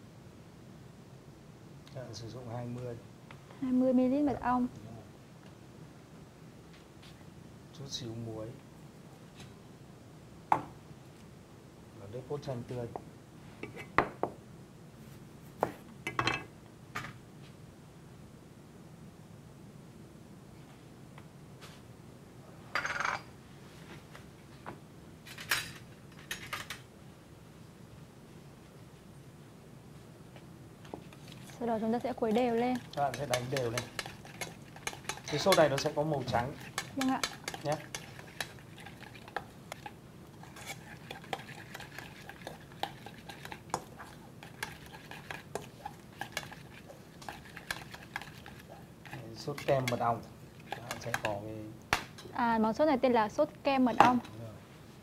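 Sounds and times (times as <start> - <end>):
dishes and utensils clinking: 22.8 - 23.3, 32.8 - 46.6.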